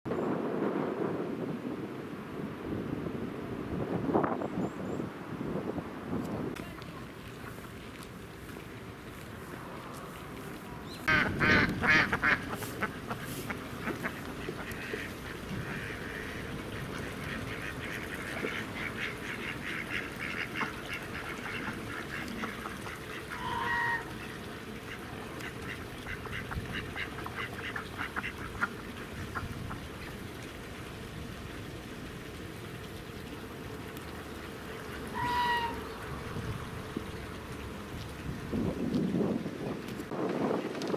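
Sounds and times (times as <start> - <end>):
geese honking: 10.9 - 28.8, 34.8 - 36.0
ducks quacking: 10.9 - 30.1, 34.9 - 36.0.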